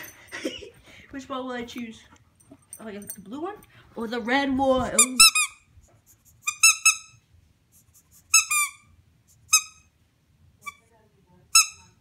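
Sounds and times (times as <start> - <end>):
squeaky rubber toy ball squeaks: 5.0 - 5.6, 6.4 - 7.2, 8.3 - 8.9, 9.5 - 9.9, 11.5 - 12.0.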